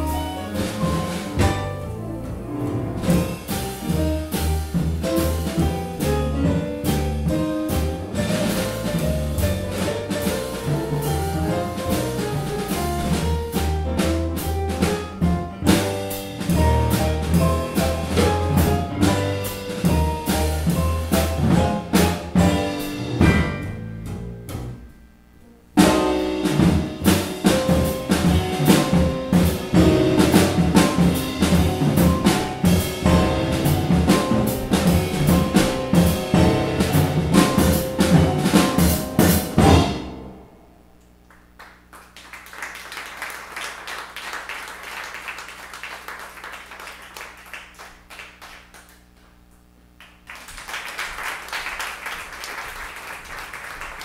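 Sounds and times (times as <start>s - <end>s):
upright double bass: 0.0s - 40.4s
drum kit: 0.0s - 40.6s
piano: 0.0s - 48.7s.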